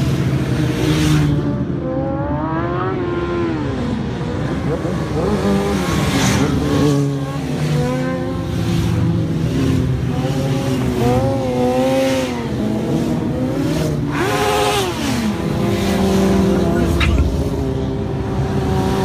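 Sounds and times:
sport bike engines passing and revving: 0.0 - 19.0.

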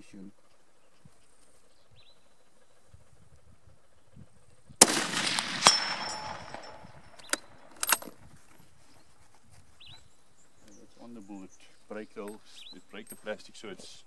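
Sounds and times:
rifle shot: 4.8 - 8.0
sharp crack: 4.8 - 8.0.

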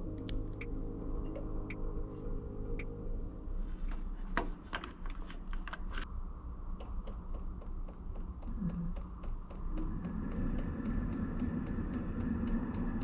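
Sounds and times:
air heater humming: 6.7 - 13.0.

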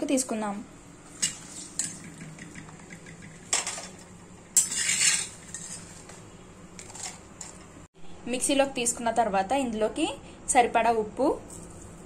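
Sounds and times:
steel spoon scraping metal pan: 4.6 - 6.0.

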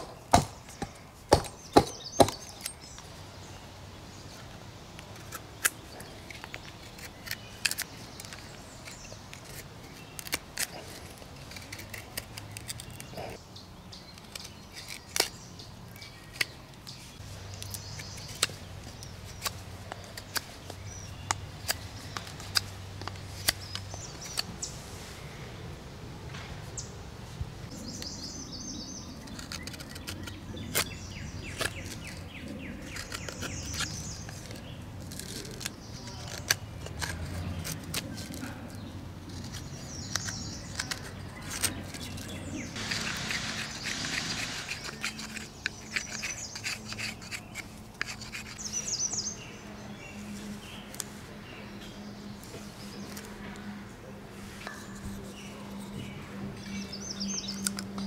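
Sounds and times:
knife scraping wood: 5.0 - 13.4, 14.1 - 24.7, 29.0 - 49.5.

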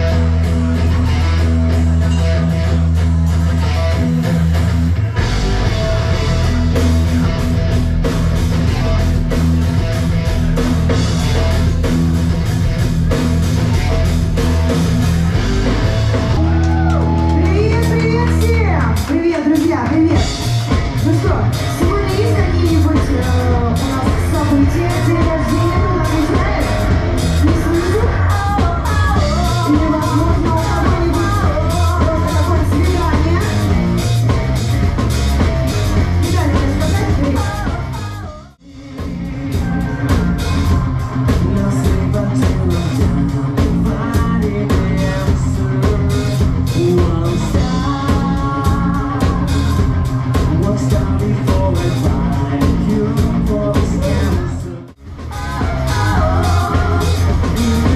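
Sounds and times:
live rock band playing: 0.0 - 57.9
person singing: 20.1 - 57.9.

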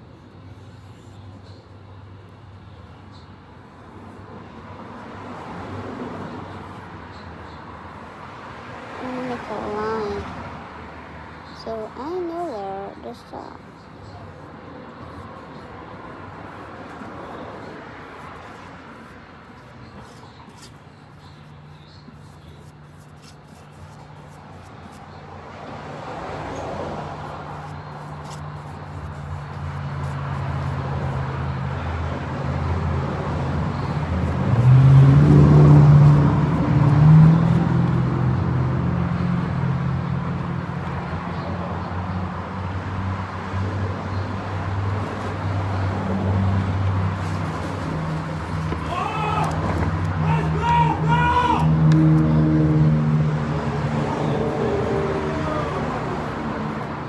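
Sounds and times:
low engine hum: 24.0 - 57.0.

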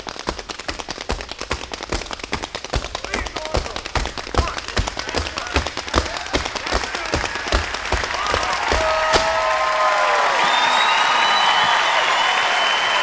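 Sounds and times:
hard stamp on stage floor: 0.0 - 9.7
tap shoes on stage floor: 0.0 - 10.2
audience applause and cheering: 2.5 - 13.0.

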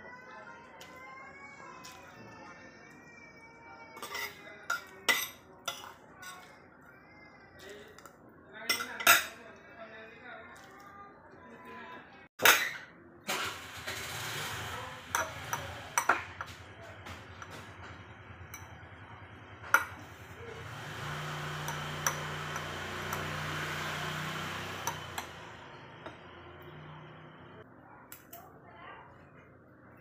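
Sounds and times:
cutlery clinking on ceramic bowls: 4.0 - 6.5, 8.7 - 9.4, 15.1 - 17.7, 19.7 - 20.2, 21.0 - 23.6, 24.2 - 26.7.

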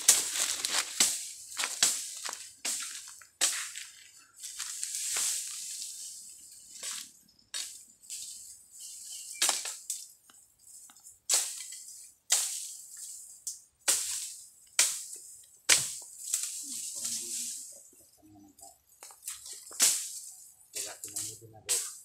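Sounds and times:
footsteps crunching through dry leaves: 0.0 - 9.9, 15.8 - 17.8.

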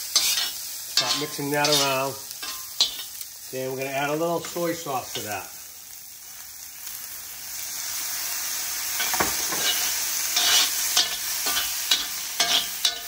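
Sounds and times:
metal utensils scraping cast iron: 0.0 - 3.2, 9.0 - 13.0
sauce sizzling in a wok: 0.0 - 13.0.

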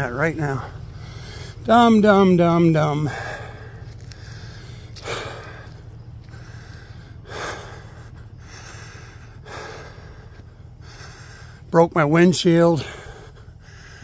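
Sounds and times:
low steady hum: 0.0 - 14.0
man breathing heavily: 0.0 - 14.0.

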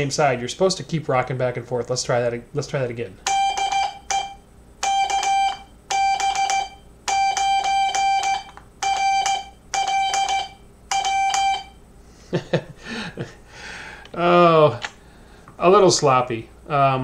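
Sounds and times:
morse code beeps: 3.2 - 11.8.

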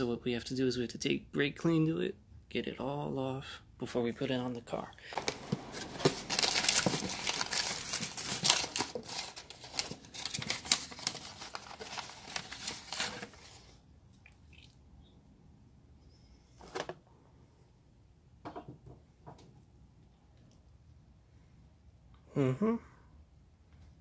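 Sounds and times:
plastic bag crinkling: 5.0 - 13.8.

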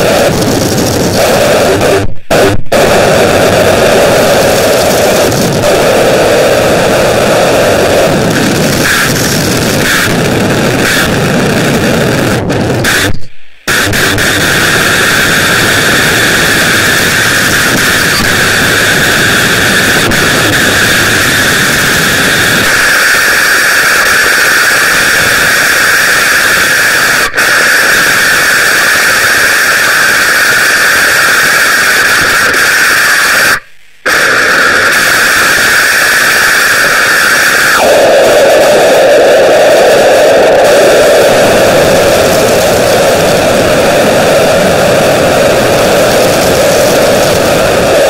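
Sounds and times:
loud dense static noise: 0.0 - 48.0.

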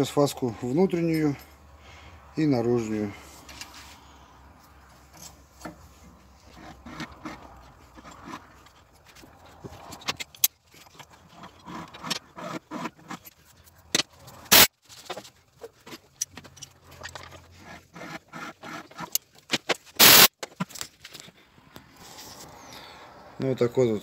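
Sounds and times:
loud short noises: 14.4 - 14.7, 19.9 - 20.4.

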